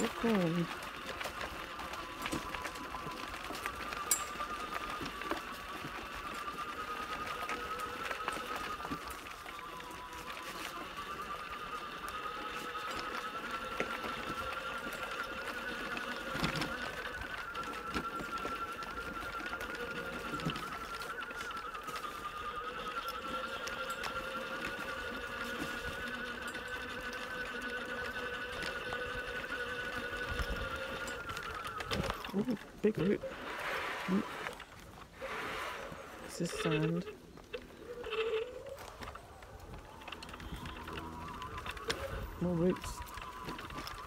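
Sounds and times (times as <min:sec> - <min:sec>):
electric motor whining: 0:00.0 - 0:44.0.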